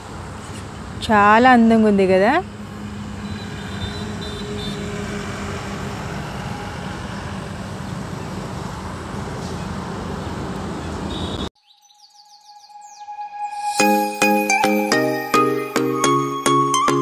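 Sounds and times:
vehicle road and engine noise: 0:00.0 - 0:11.6
music jingle with rising sweep: 0:12.4 - 0:17.0.

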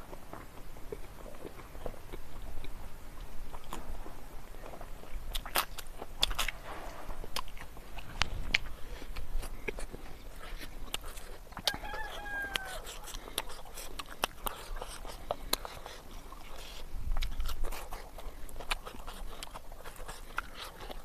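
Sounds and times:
lip smacks and chewing: 0:00.0 - 0:21.0
rooster crowing: 0:11.6 - 0:13.0.

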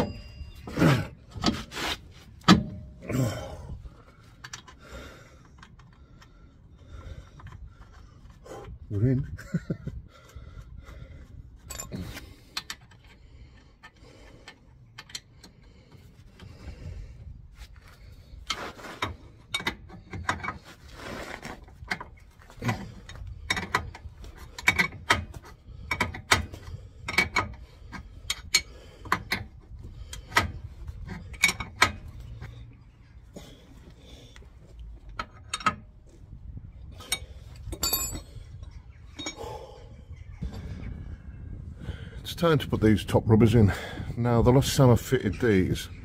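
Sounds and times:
tool handling sounds: 0:00.0 - 0:03.1, 0:17.6 - 0:39.6.

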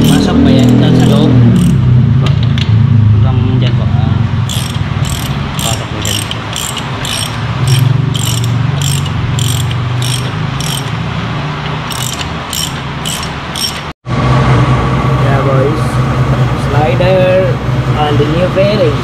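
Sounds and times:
socket ratchet clicking: 0:00.0 - 0:01.8, 0:04.5 - 0:11.0, 0:11.8 - 0:13.9.

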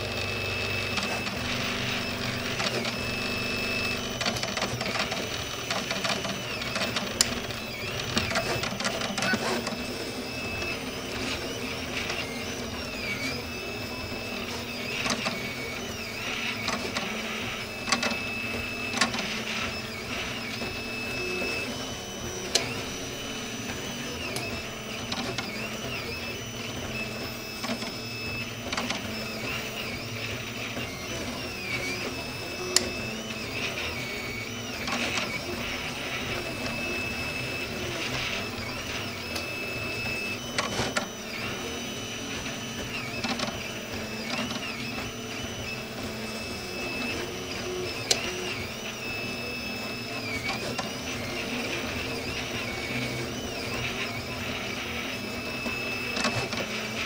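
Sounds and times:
stepper motors whining: 0:00.0 - 0:57.0.

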